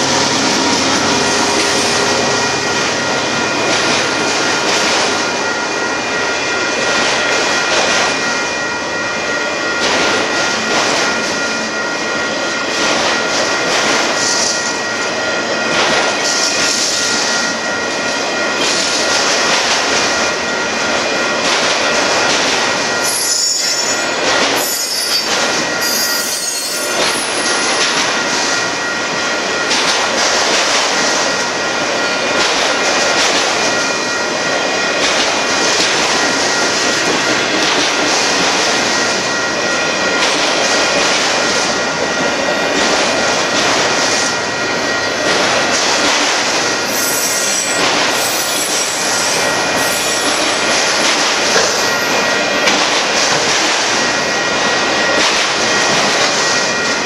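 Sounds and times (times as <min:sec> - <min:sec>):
steel wheels rumbling on rail: 0:00.0 - 0:57.0
high-pitched wheel squeal: 0:23.1 - 0:27.7, 0:46.9 - 0:50.4.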